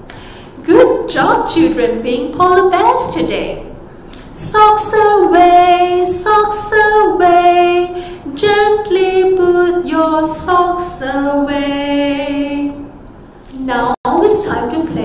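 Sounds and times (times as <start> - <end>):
woman singing: 4.4 - 12.9.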